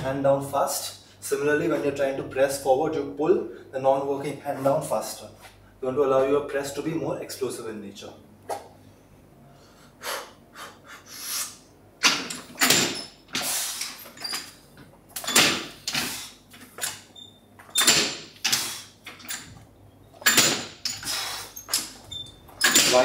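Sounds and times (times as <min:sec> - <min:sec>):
noisy bursts of weight presses: 0:11.1 - 0:14.6, 0:15.2 - 0:19.6, 0:20.2 - 0:23.0.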